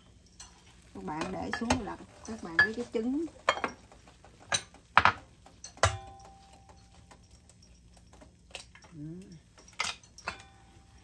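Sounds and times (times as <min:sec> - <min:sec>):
dish clinking: 0:00.2 - 0:11.0
person humming: 0:08.9 - 0:09.4.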